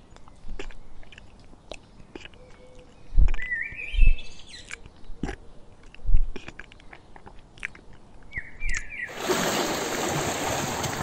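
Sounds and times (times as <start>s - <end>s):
giraffe chewing: 0.0s - 3.6s, 4.5s - 8.8s
small birds chirping: 0.0s - 9.2s.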